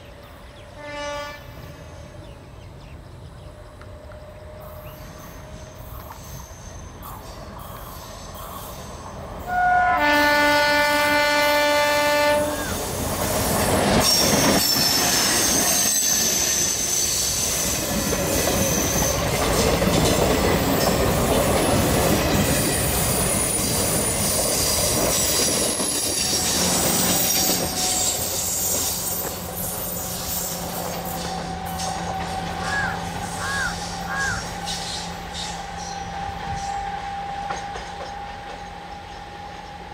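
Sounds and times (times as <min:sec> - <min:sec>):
train horn blast: 0:00.6 - 0:02.2, 0:09.5 - 0:13.0
train wheels rumbling on rails: 0:01.5 - 0:39.9
wheels squealing: 0:12.6 - 0:19.8, 0:20.4 - 0:36.0.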